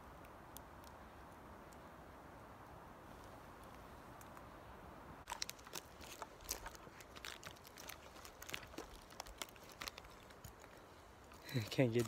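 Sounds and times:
footsteps on dry forest litter: 5.3s - 12.0s.

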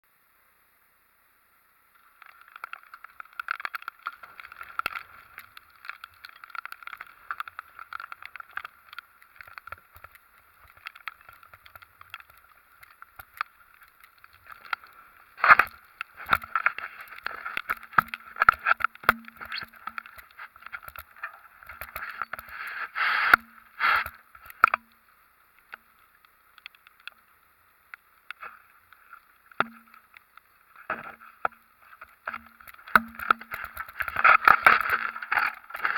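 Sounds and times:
wind and rain buffeting camera: 1.9s - 35.9s.

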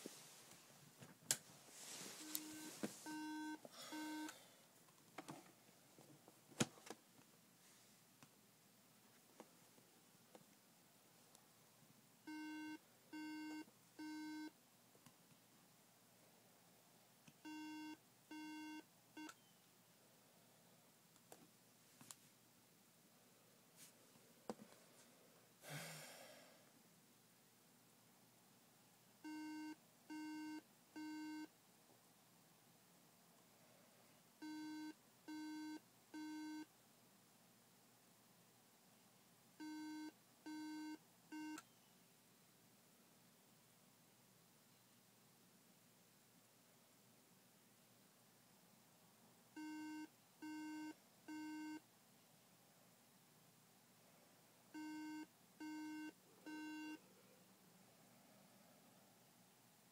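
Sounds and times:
long low alarm beeps: 2.2s - 4.3s.

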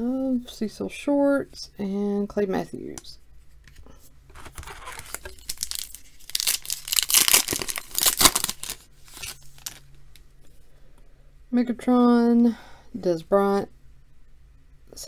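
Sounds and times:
foil wrapper crinkling and tearing: 4.3s - 9.8s.

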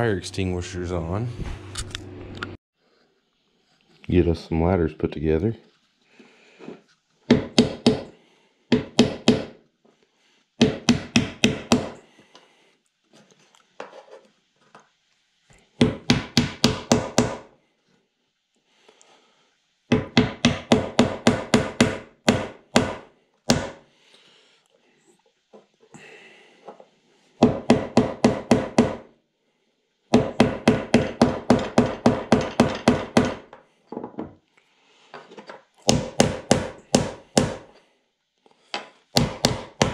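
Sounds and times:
hammer striking wooden dowels: 7.3s - 9.6s, 10.6s - 12.1s, 15.8s - 17.5s, 19.9s - 23.8s, 27.4s - 29.1s, 30.1s - 34.3s, 35.5s - 37.8s, 38.7s - 39.9s.

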